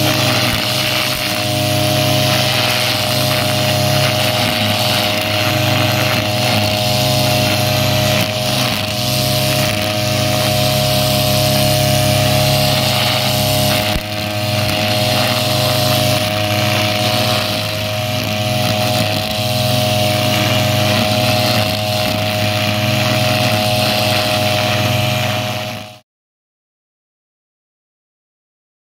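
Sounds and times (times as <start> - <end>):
brush cutter engine running: 0.0 - 26.0
nylon line cutting grass: 0.0 - 26.0.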